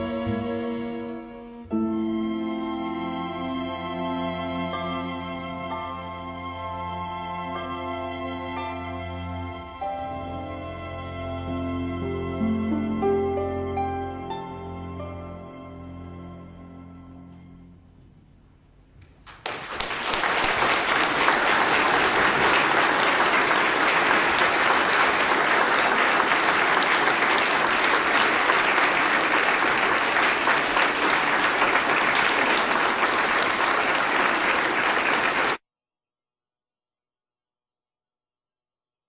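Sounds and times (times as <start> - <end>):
music: 0.0 - 19.0, 21.2 - 35.5
audience applauding: 19.2 - 35.6.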